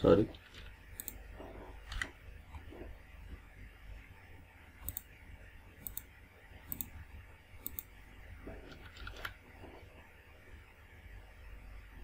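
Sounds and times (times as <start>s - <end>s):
faint hum: 0.0s - 12.0s
computer mouse clicking: 0.4s - 1.2s, 1.8s - 2.6s, 4.8s - 5.1s, 5.8s - 6.1s, 6.7s - 7.0s, 7.6s - 7.9s.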